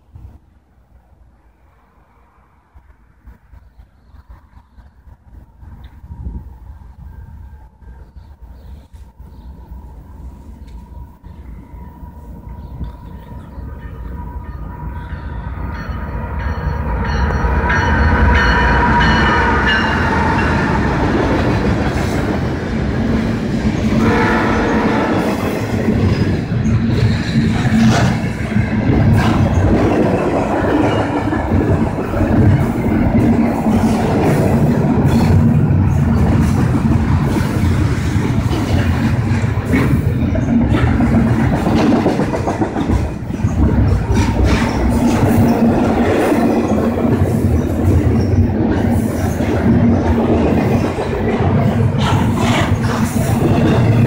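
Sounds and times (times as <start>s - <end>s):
freight train rumbling: 0.0s - 54.0s
train wheels clattering on rails: 12.4s - 54.0s
train horn: 23.9s - 25.7s.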